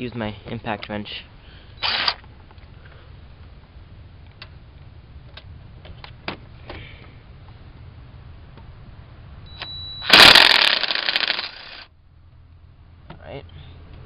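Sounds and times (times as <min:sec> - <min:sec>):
impact wrench burst: 0:01.8 - 0:02.2, 0:10.0 - 0:11.9.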